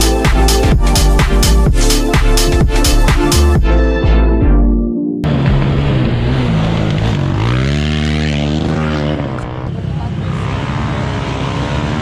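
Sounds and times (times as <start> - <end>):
quad engine revving: 5.3 - 12.0.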